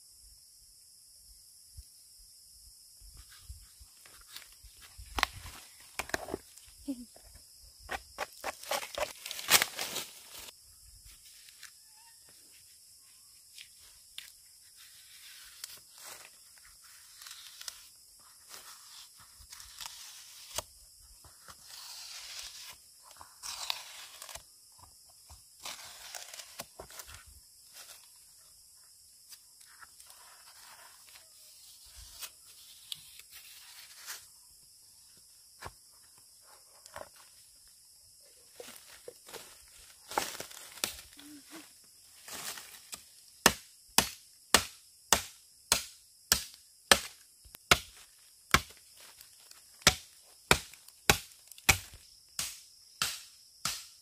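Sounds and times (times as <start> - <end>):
bark tearing off tree trunk: 8.2 - 10.5.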